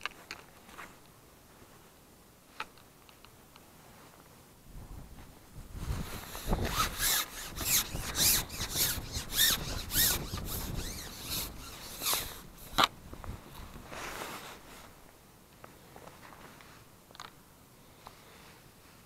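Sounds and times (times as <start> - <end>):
fishing pole sliding and rubbing: 5.8 - 12.9, 13.7 - 15.0.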